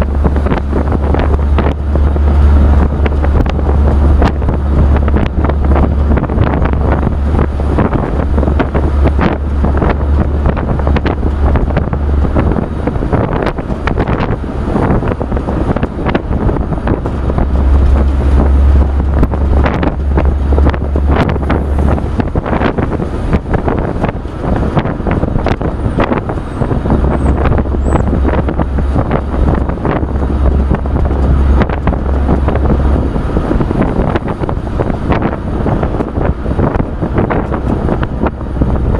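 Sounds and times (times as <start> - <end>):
truck road noise: 0.0 - 38.9
wind buffeting microphone: 0.0 - 38.9.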